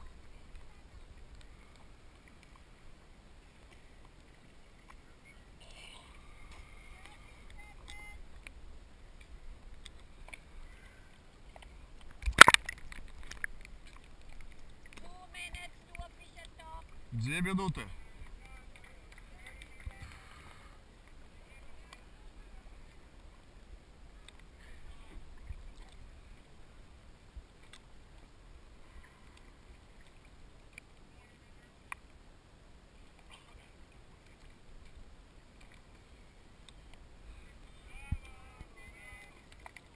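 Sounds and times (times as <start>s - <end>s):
water lapping: 0.0s - 32.2s
faint clicks: 0.4s - 2.7s, 6.5s - 17.0s, 24.2s - 26.5s, 27.6s - 28.3s, 39.3s - 39.9s.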